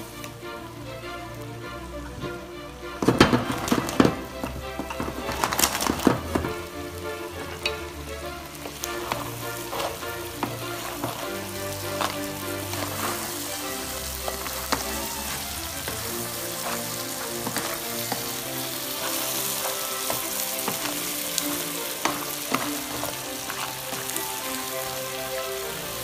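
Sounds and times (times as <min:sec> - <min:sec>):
seafood sizzling in a pan: 0:03.0 - 0:26.0
spatula clacking on shells: 0:08.6 - 0:24.6.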